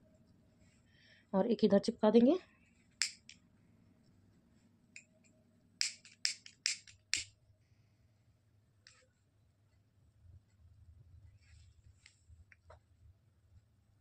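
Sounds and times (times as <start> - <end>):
lighter clicking: 3.0 - 3.4, 5.8 - 7.3.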